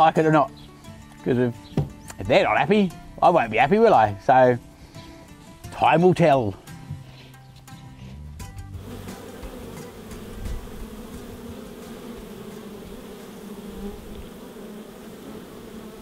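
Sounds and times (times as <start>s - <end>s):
bees buzzing: 8.6s - 16.0s.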